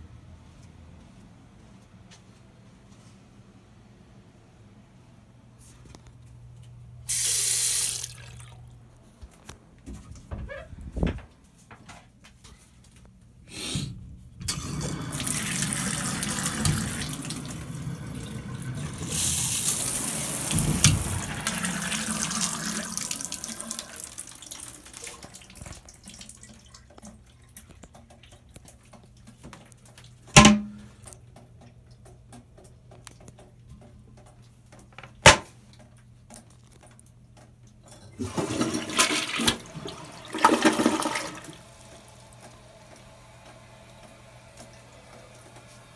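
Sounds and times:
water gushing into tub: 7.1 - 8.7, 14.5 - 27.6, 38.2 - 42.4.

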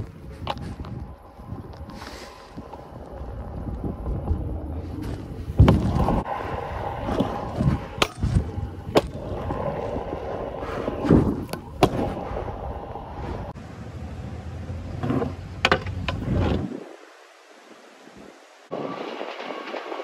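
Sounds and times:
scooter wheels rolling on concrete: 0.0 - 13.6
scooter clacks and thuds on ramps: 5.5 - 6.2, 15.0 - 16.6.

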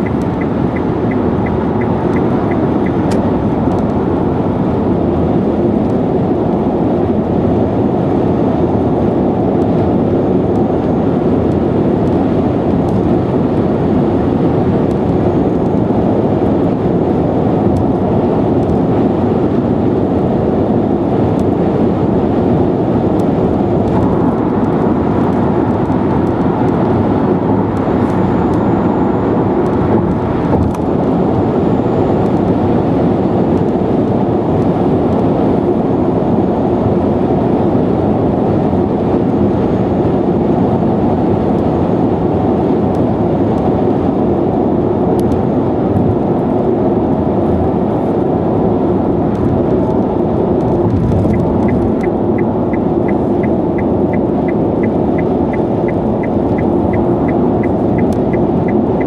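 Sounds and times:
light regular ticking: 0.0 - 3.2, 51.3 - 59.0
car road and wind noise: 0.0 - 59.0.

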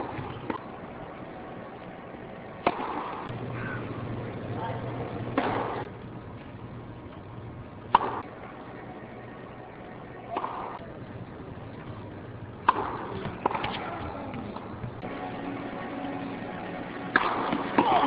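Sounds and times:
tennis ball struck by racket: 2.6 - 3.3, 5.4 - 5.8, 7.9 - 8.3, 10.3 - 10.8, 12.6 - 14.4, 17.0 - 18.0.

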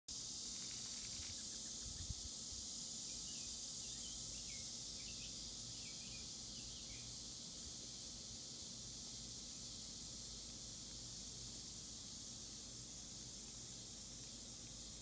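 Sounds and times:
insects chorus: 0.1 - 15.0
bird chirps: 3.1 - 7.2.

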